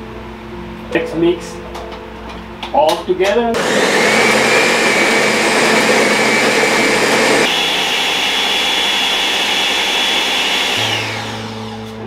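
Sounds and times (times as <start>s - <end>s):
blender motor whine: 3.6s - 12.0s.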